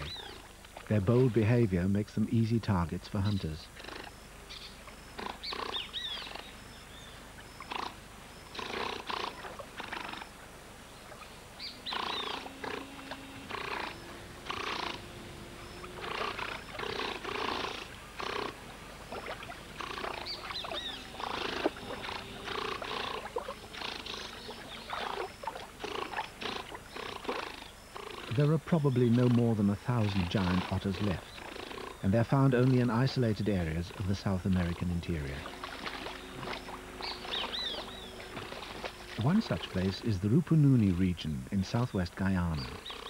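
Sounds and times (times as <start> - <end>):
low growls: 11.6 - 18.6
otters snorting and screaming: 11.9 - 40.1.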